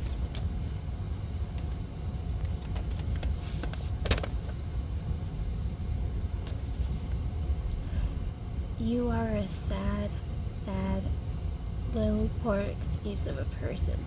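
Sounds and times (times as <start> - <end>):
paper rustling: 0.0 - 4.6.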